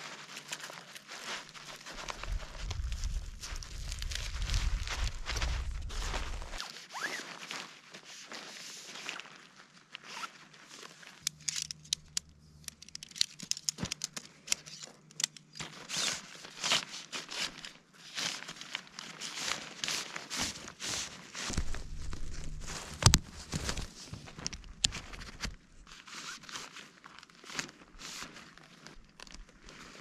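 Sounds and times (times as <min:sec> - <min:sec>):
fabric rustling and scraping: 0:00.0 - 0:11.2, 0:15.6 - 0:29.0
sharp clicks and snaps: 0:11.2 - 0:15.6.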